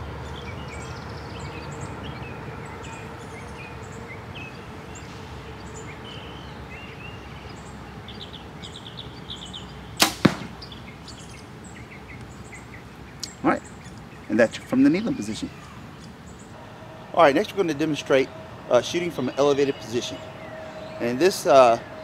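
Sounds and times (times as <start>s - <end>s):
arrow striking foam target: 10.0s - 10.6s.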